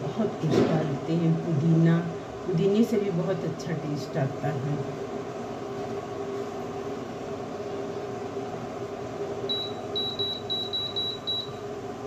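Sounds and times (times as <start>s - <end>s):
steady hum: 0.0s - 12.0s
short high beeps: 9.5s - 11.6s.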